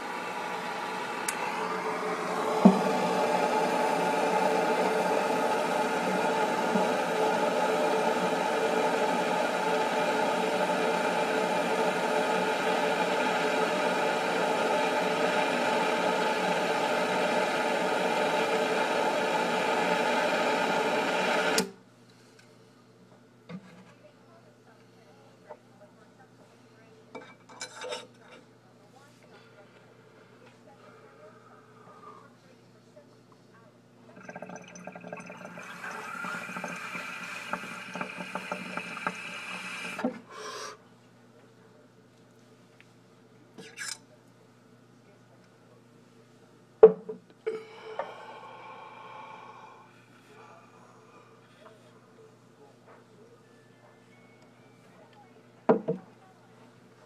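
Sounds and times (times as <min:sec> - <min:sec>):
water bubbling through glass pipe: 0:34.2 - 0:40.0.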